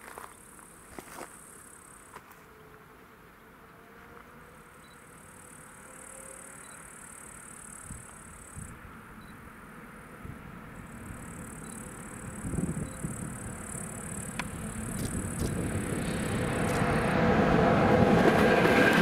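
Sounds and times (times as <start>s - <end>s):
insects buzzing: 0.0s - 18.9s
electric freight train rumble: 7.6s - 19.0s.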